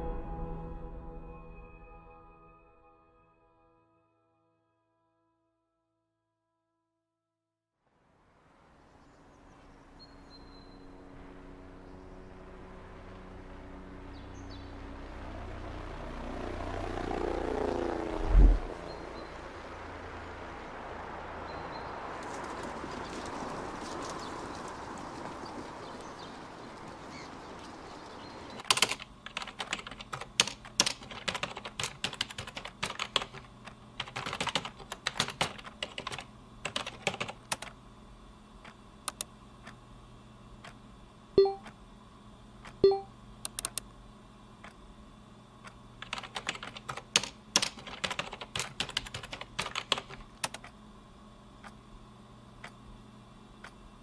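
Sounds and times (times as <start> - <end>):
typing on computer keyboard: 28.6 - 37.8, 46.0 - 50.7
short beeps: 41.4 - 41.6, 42.8 - 43.1.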